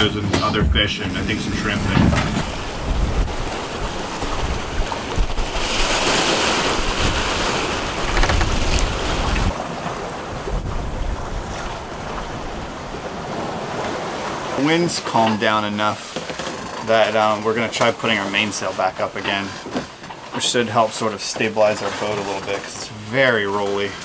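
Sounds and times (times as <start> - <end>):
wind rumble on microphone: 0.0 - 9.6, 10.2 - 13.2
rushing wash of water: 0.0 - 16.1
sea waves: 0.0 - 24.0
wind: 0.0 - 24.0.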